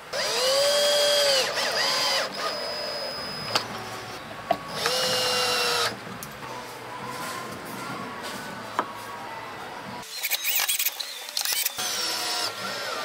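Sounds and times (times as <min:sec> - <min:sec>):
drill motor whining: 0:00.0 - 0:06.0, 0:10.0 - 0:13.0.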